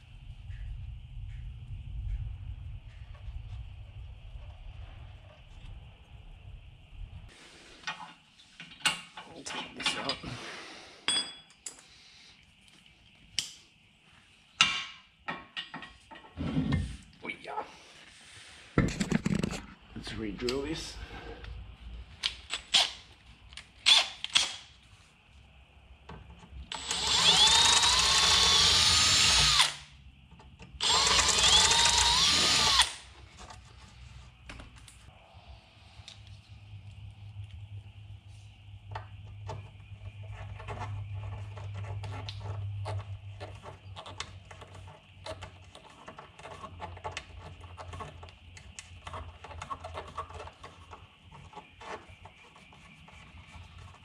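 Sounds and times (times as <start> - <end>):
cordless drill running: 26.7 - 29.8, 30.8 - 33.0.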